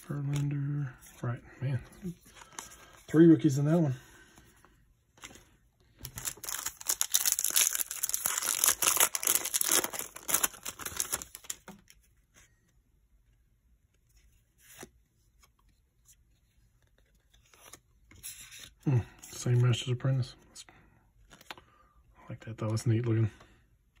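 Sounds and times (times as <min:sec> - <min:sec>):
cards being handled: 0:00.0 - 0:01.2, 0:05.1 - 0:12.5, 0:14.0 - 0:18.8, 0:21.3 - 0:21.6
foil wrapper tearing and crinkling: 0:06.0 - 0:11.7.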